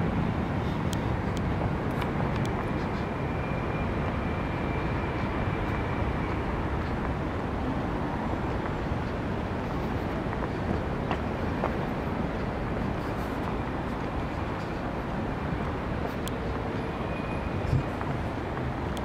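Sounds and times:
distant city traffic: 0:00.0 - 0:19.0
wind on microphone: 0:05.0 - 0:19.0.

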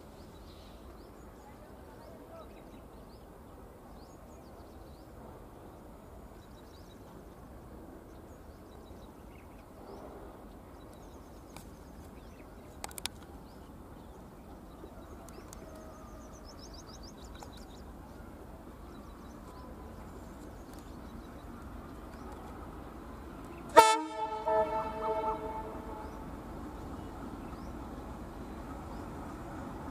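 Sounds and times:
low rumble of train: 0:00.0 - 0:29.9
small birds chirping: 0:10.8 - 0:23.7.

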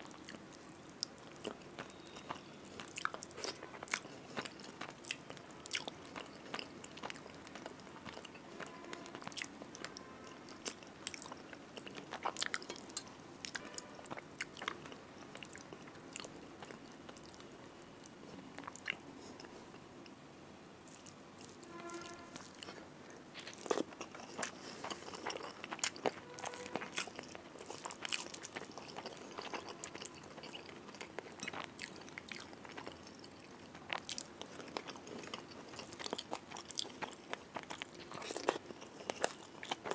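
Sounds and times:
chewing and crunching: 0:00.0 - 0:20.2, 0:20.8 - 0:39.9.

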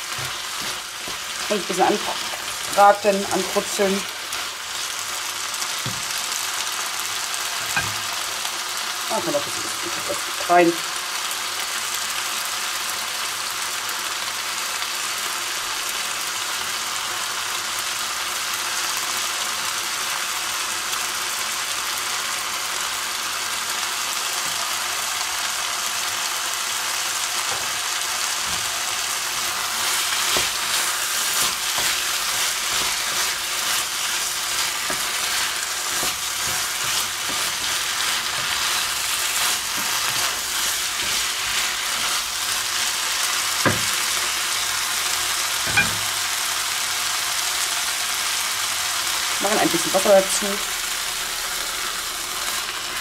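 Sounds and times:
vegetables sizzling in a wok: 0:00.0 - 0:53.0
wooden spatula scraping pan: 0:28.4 - 0:42.9.

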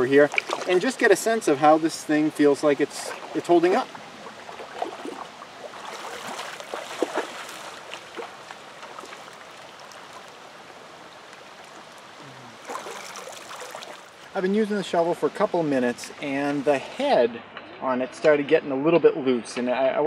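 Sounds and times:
splashing water: 0:00.0 - 0:14.4
shallow stream running: 0:00.0 - 0:17.2.

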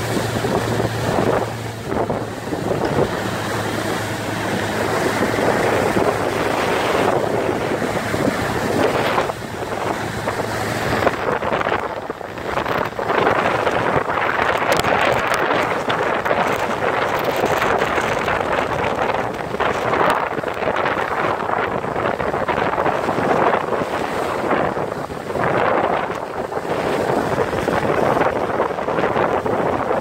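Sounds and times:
outboard motor hum: 0:00.0 - 0:30.0
water rushing in boat wake: 0:00.0 - 0:30.0
wind buffeting microphone: 0:00.0 - 0:30.0.

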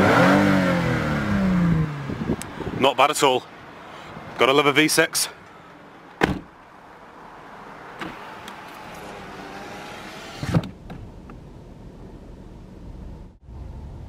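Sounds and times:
window glass thump: 0:06.2 - 0:06.5
electric window motor: 0:08.9 - 0:10.7.

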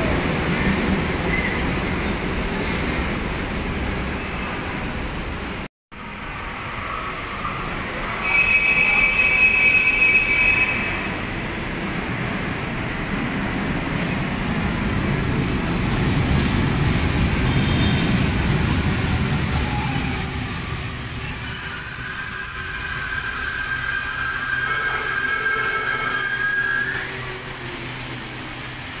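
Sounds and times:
light rail train rumbling: 0:00.0 - 0:29.0
steady whine: 0:18.7 - 0:29.0.

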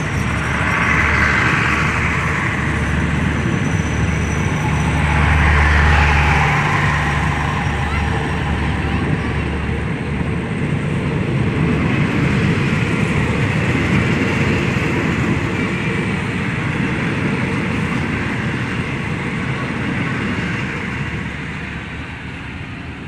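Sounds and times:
train wheels rumbling on rails: 0:00.0 - 0:23.0.

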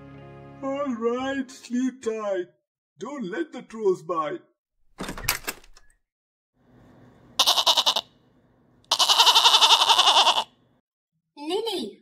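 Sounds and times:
goat bleating: 0:07.4 - 0:08.1, 0:08.9 - 0:10.5.

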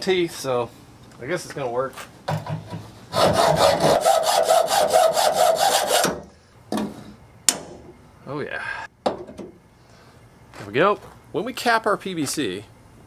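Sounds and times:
hacksaw cutting steel: 0:03.1 - 0:06.2.

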